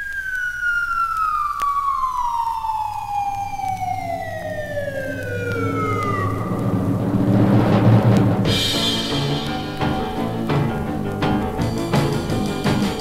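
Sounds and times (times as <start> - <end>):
falling bomb whistle: 0.0 - 9.6
low rumble: 2.9 - 11.2.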